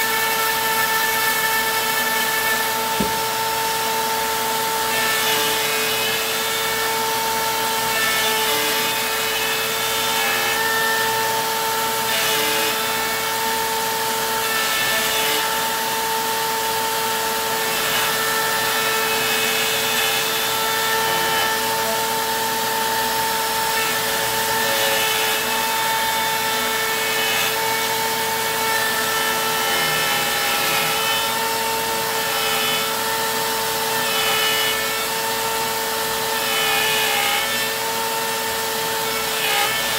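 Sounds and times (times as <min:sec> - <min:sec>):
router bit cutting: 0:00.0 - 0:39.9
trim router whine: 0:00.0 - 0:39.9.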